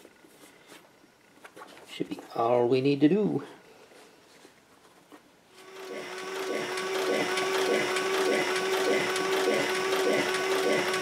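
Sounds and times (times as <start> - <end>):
sewing machine motor whine: 5.6 - 11.0.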